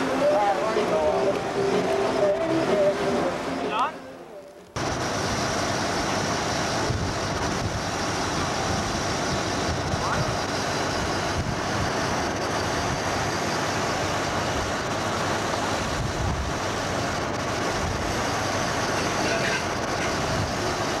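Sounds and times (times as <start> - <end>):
faint voices: 0.0 - 4.6
rushing outdoor noise: 0.0 - 21.0.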